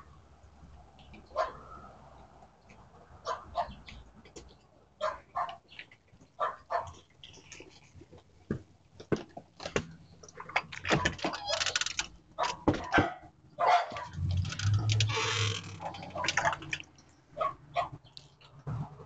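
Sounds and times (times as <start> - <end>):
dog barking: 1.3 - 1.7, 3.2 - 3.8, 5.0 - 5.6, 6.4 - 7.0, 12.4 - 14.2, 15.8 - 16.5, 17.4 - 18.0
footsteps on porch steps: 8.5 - 10.0.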